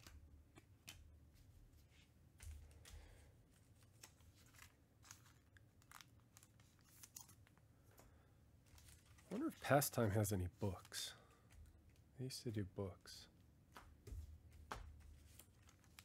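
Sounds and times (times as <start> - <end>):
trading cards clicking and rustling: 2.3 - 12.1.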